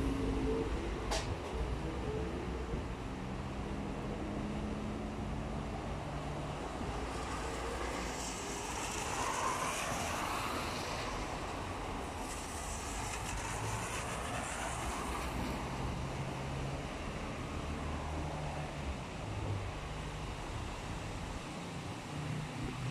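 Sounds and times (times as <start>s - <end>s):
traffic noise: 0.0s - 22.9s
wind: 0.0s - 22.9s
tyres hissing on wet road: 4.6s - 22.9s.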